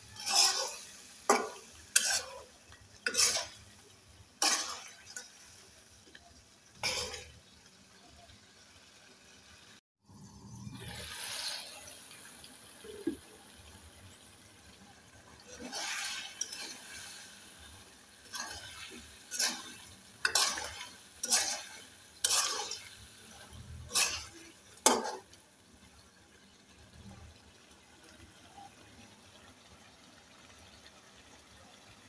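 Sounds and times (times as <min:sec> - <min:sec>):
spatula scraping in cooking pan: 0:00.0 - 0:07.6, 0:15.2 - 0:25.4.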